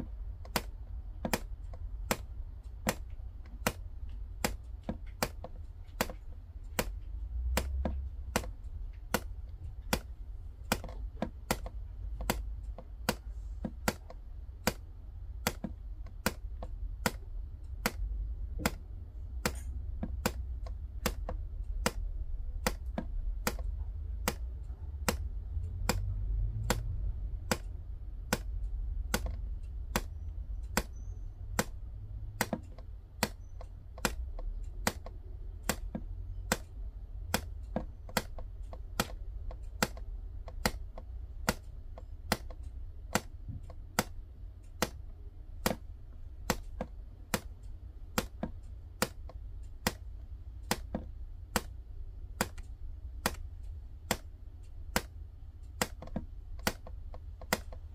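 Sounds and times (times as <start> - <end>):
sharp regular ticks: 0.0 - 57.9.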